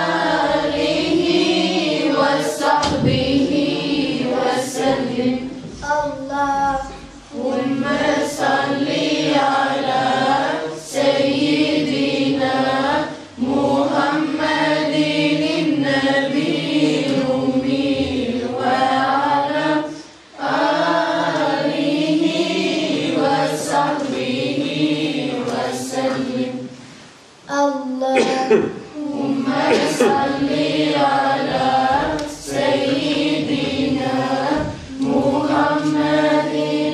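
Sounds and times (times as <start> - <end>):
girls singing a hymn: 0.0 - 27.1, 28.2 - 36.9.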